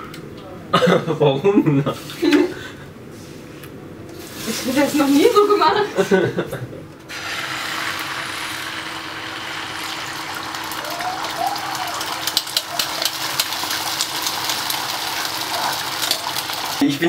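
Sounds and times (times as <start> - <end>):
egg sizzling in frying pan: 7.1 - 16.8.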